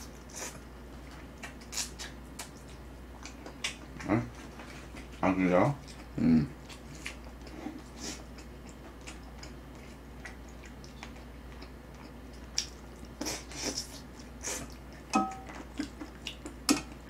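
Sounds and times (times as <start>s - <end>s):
person biting and chewing: 1.4s - 4.0s
wet mouth sounds: 1.4s - 4.1s.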